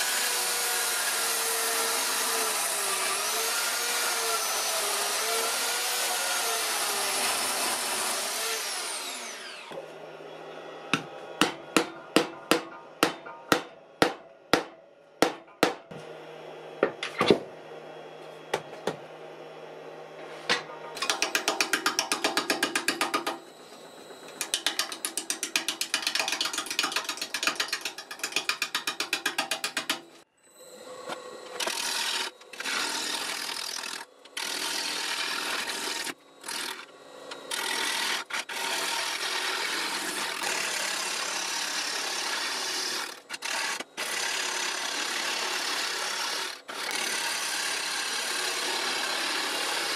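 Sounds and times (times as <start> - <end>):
gouge shearing wood: 24.4 - 30.1.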